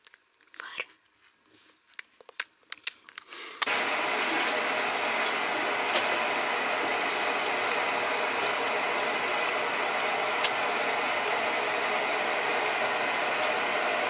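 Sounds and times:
shower water pouring into bathtub: 3.6s - 10.8s.

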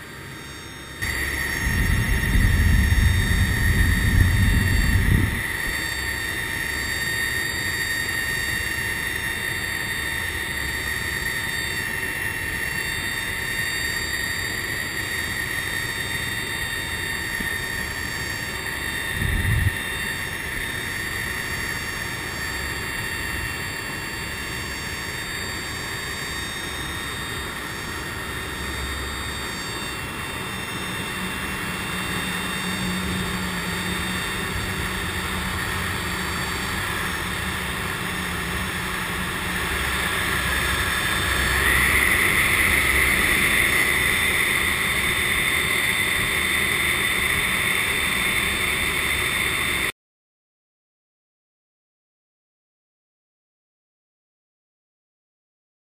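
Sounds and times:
turboprop engines whining: 0.0s - 49.9s
loud low rumble: 1.0s - 6.2s, 31.3s - 48.9s.

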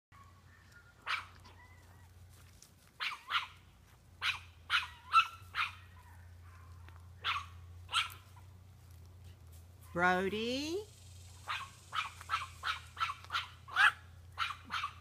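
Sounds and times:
small dog barking: 0.2s - 1.8s, 3.0s - 3.6s, 4.2s - 8.4s, 11.4s - 15.0s.

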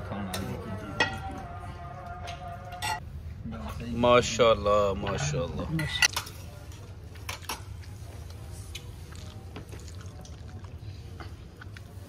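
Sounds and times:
spoons clinking on platters: 0.2s - 1.5s, 2.3s - 3.0s.

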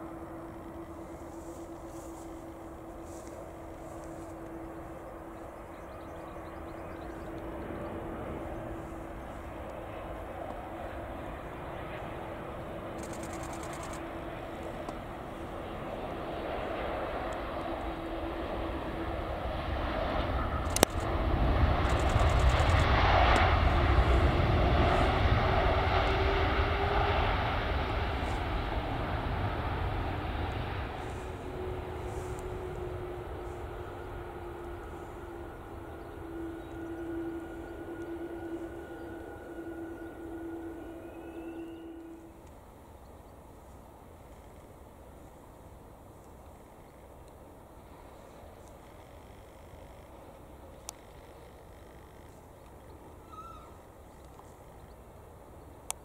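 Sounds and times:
humming tone: 0.0s - 42.7s
jet engines roaring: 0.0s - 54.8s.

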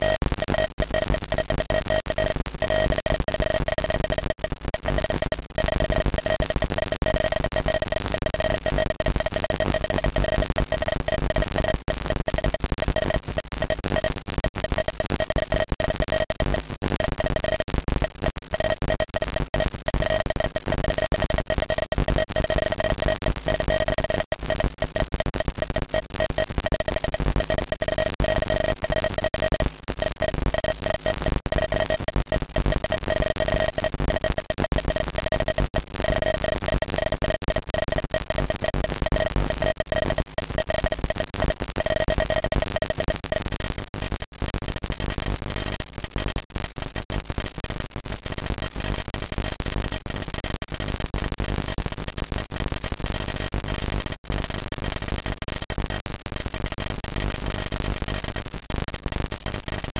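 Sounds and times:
steady buzzing tone: 0.0s - 44.2s
harsh noisy electronic crackle: 0.0s - 59.9s.

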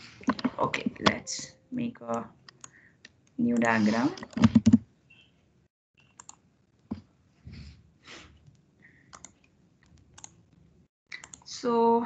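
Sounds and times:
keyboard and mouse clicks: 2.1s - 4.8s, 6.0s - 7.1s, 8.5s - 11.5s.

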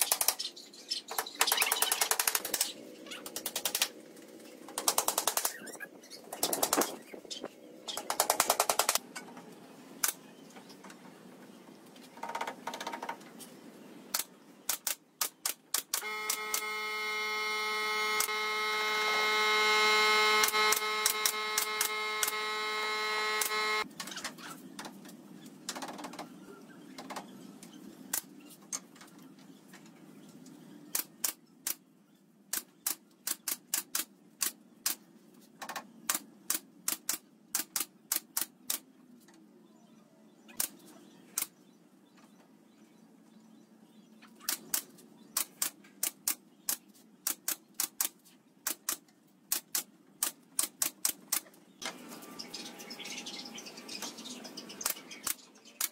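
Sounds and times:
loud pitched machine hum: 16.0s - 23.8s.

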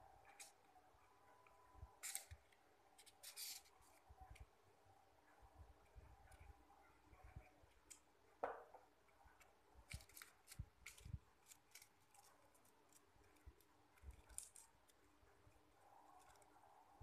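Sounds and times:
paper rustling and crinkling: 2.0s - 4.4s, 9.8s - 15.2s.

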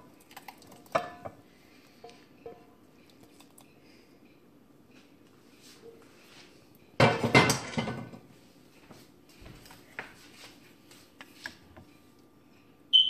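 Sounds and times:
cooking pan and utensils clattering: 0.9s - 1.4s, 7.0s - 8.3s.

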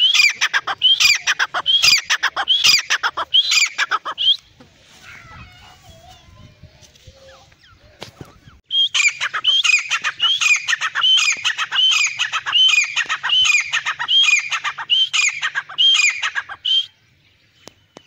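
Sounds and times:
francolin calling: 0.0s - 4.6s, 7.3s - 17.1s.

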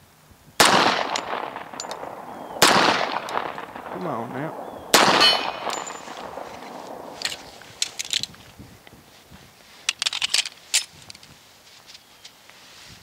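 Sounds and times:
pistol shot echo: 0.6s - 7.7s
pistol clicking and rattling: 1.0s - 2.1s, 2.8s - 3.6s, 5.0s - 8.4s, 9.9s - 11.3s.

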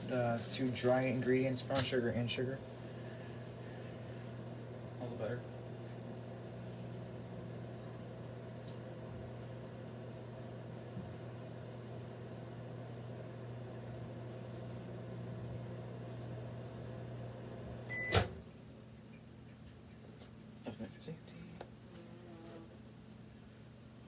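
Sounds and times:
microwave oven humming: 0.0s - 19.1s
microwave beep: 17.8s - 18.4s.

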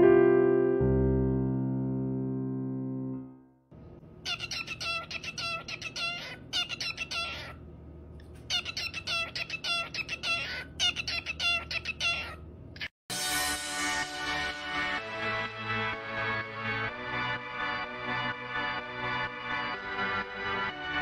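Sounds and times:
cockatiel chirping: 4.3s - 7.6s, 8.5s - 12.4s.

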